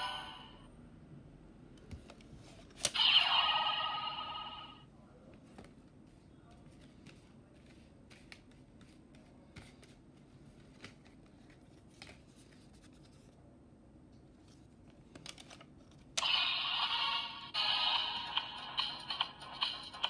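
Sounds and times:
toy electronic sound effect tune: 3.0 - 4.8, 16.2 - 19.2
plastic clicks and scratching: 14.9 - 16.1.

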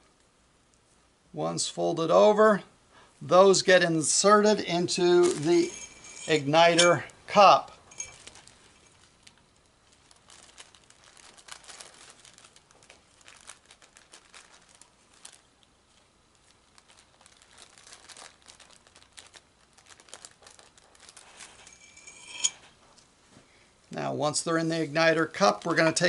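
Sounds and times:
plastic crinkling: 4.9 - 7.2, 7.9 - 22.8.

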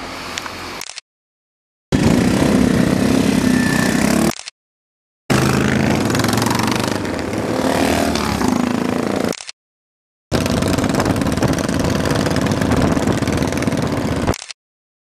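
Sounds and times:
motorcycle engines running: 1.9 - 4.3, 5.3 - 9.3, 10.3 - 14.4
motorcycles passing close by: 1.9 - 4.3, 5.3 - 9.3, 10.3 - 14.3.

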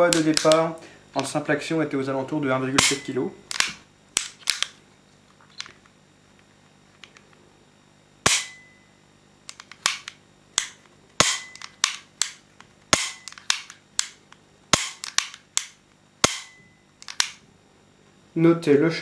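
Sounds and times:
pistol hammer snapping: 0.1 - 0.6, 2.8 - 4.8, 9.5 - 12.4, 13.0 - 17.4
trigger clicks: 2.8 - 4.8, 9.5 - 17.4.

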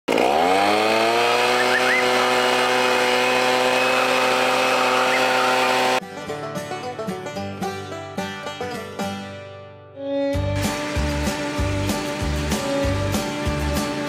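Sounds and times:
leaf blower running: 0.0 - 6.0, 10.5 - 14.0
fiddle and banjo music: 4.9 - 14.0.

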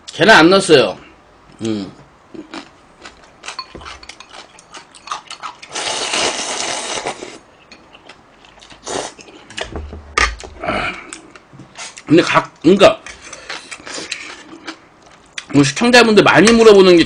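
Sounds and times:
slurping noodles: 5.7 - 7.4
dull low thump: 9.5 - 11.0.

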